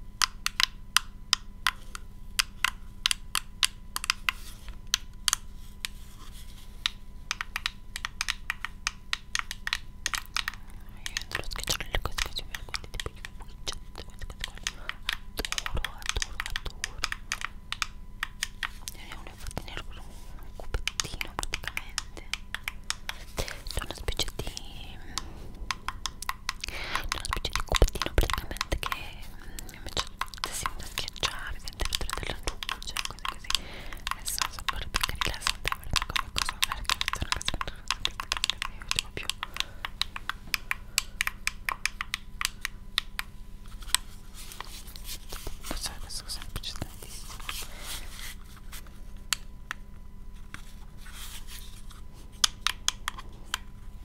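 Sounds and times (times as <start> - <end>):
faint steady hum: 0.0 - 54.0
soft mouth clicks: 7.3 - 43.3.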